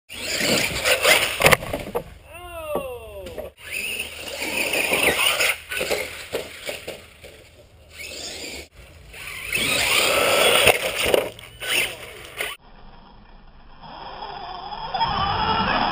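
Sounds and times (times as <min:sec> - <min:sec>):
electric motor whine: 0:07.9 - 0:12.6.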